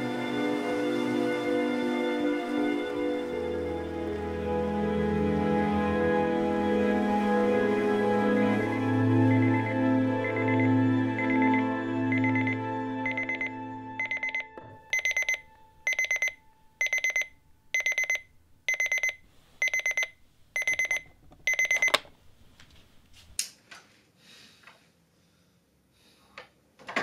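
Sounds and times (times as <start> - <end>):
music: 0.0 - 16.8
alarm clock beeping: 8.6 - 22.0.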